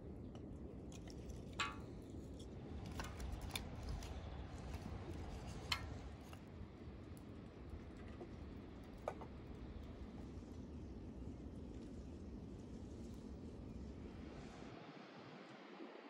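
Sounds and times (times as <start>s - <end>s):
wooden sticks clicking on metal: 1.6s - 2.4s.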